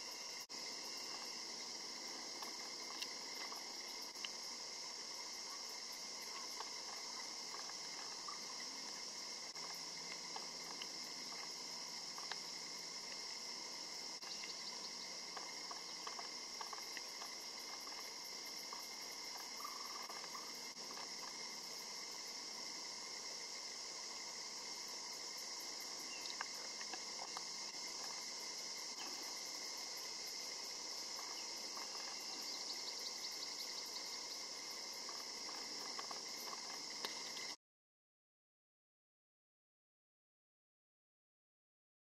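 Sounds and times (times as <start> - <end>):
high-pitched insect chorus: 0.0 - 37.6
faint ticks: 2.1 - 4.4, 6.2 - 13.4, 14.2 - 21.5, 25.8 - 29.4, 30.0 - 37.6.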